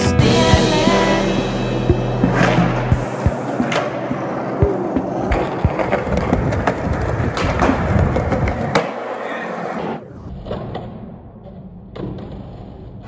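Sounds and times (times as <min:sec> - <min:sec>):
skateboard wheels rolling on concrete: 0:02.0 - 0:13.0
skateboard clacking on ground: 0:03.2 - 0:09.6.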